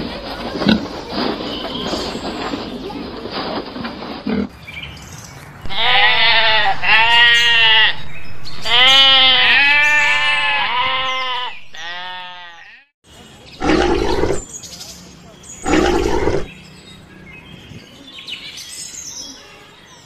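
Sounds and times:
sheep bleating: 0:05.7 - 0:08.0, 0:08.6 - 0:12.9
wild boar grunting: 0:13.6 - 0:14.5, 0:15.6 - 0:16.5.

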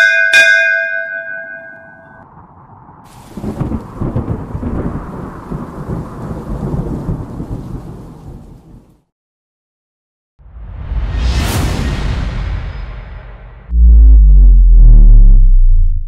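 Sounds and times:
thunder rumbling: 0:02.2 - 0:08.8.

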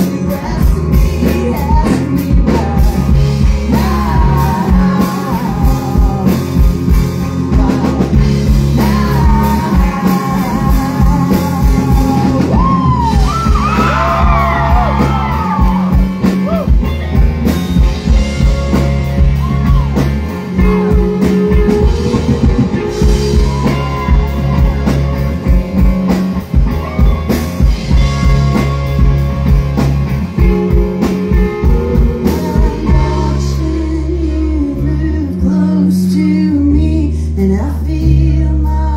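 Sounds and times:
woman singing: 0:00.0 - 0:15.8, 0:19.2 - 0:25.0, 0:30.4 - 0:38.9
drum kit beat: 0:00.0 - 0:34.3
electric guitar: 0:00.0 - 0:38.9.

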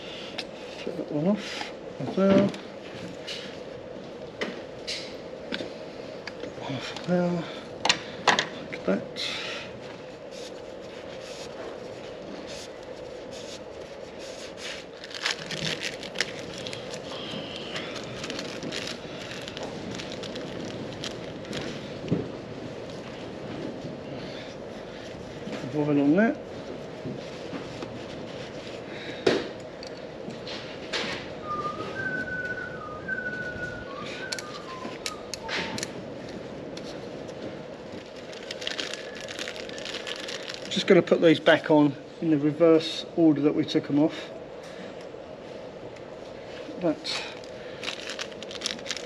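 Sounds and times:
steady low hum: 0:00.0 - 0:49.0
person whistling a tune: 0:31.4 - 0:35.7.

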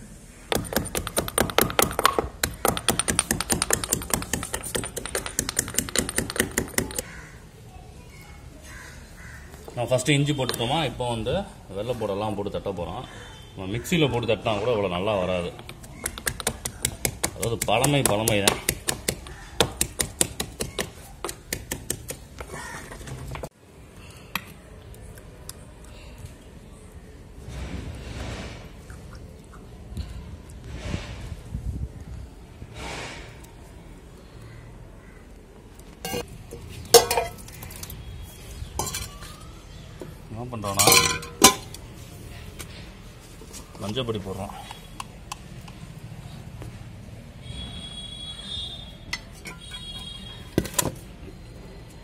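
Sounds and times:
stone pestle pounding in mortar: 0:00.5 - 0:07.0, 0:16.0 - 0:22.2.

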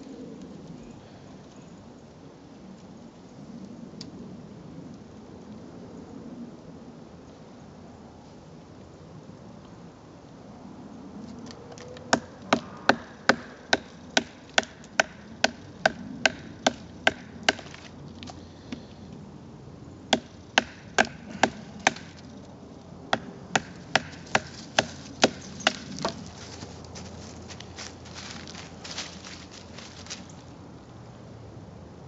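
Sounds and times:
knife chopping wooden stick: 0:20.1 - 0:22.2, 0:23.2 - 0:26.3.

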